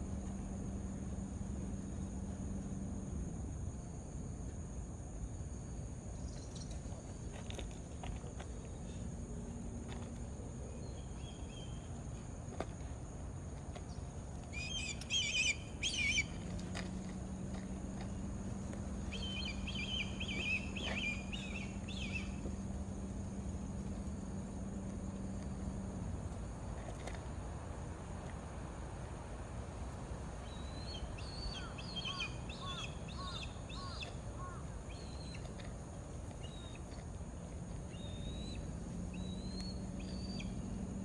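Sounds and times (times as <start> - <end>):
high insect drone: 0.0 - 41.0
steady low hum: 0.0 - 41.0
kites whistled calls: 14.5 - 16.5, 19.1 - 22.4.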